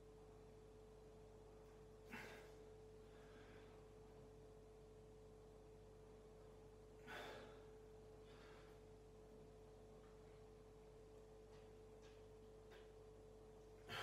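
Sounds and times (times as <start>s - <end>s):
faint steady hum: 0.0s - 14.0s
faint breath: 2.1s - 4.0s, 7.0s - 9.0s.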